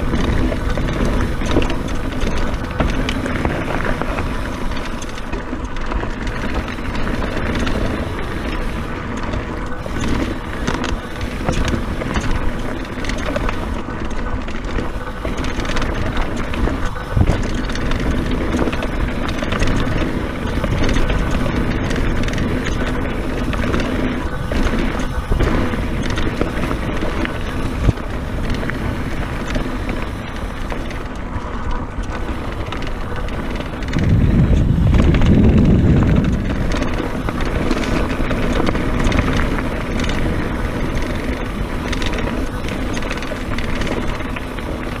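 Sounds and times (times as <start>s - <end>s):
bike rattling: 0.0s - 45.0s
tyre noise on dirt: 0.0s - 45.0s
wind buffeting microphone: 0.0s - 45.0s.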